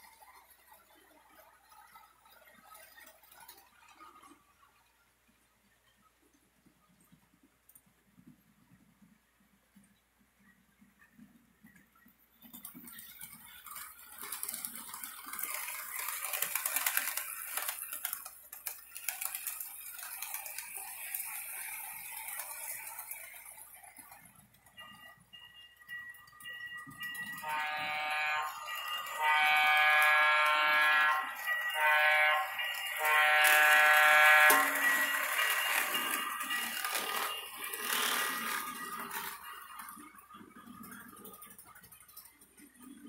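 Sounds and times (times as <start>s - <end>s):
model train whirring on track: 0.0s - 9.2s, 11.0s - 43.0s
model locomotive electronic horn: 27.0s - 39.4s.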